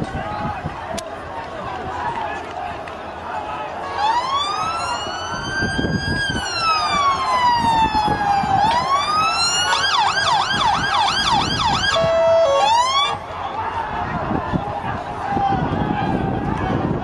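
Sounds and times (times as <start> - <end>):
police siren wailing and yelping: 3.9 - 13.2.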